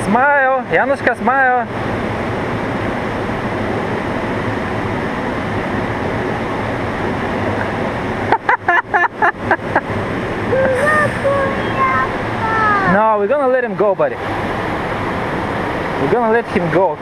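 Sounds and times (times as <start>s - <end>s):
river water rushing: 9.4s - 17.0s
short high voice sounds: 10.5s - 13.0s.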